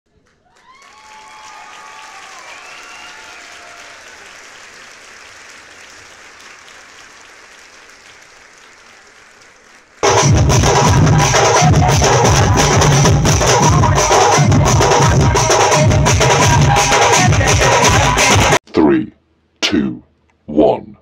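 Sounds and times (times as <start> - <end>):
crowd applauding: 0.1 - 11.7
people cheering: 0.2 - 10.0
loud drumming: 10.0 - 18.6.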